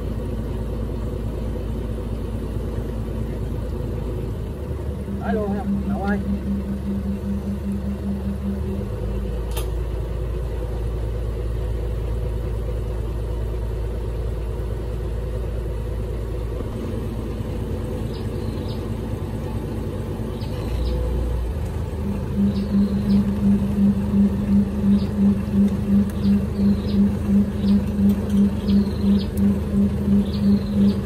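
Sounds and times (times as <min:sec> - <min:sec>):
boat engine rumbling: 0:00.0 - 0:31.0
faint high chirps: 0:05.1 - 0:09.1, 0:22.0 - 0:31.0.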